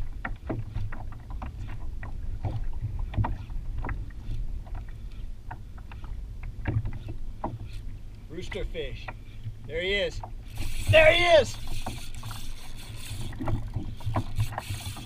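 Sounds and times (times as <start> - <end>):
water slapping against kayak hull: 0.0 - 15.0.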